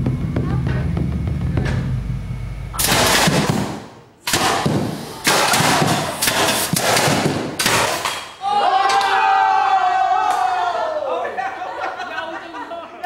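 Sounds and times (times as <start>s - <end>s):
toy cannon blasts: 2.8s - 8.4s.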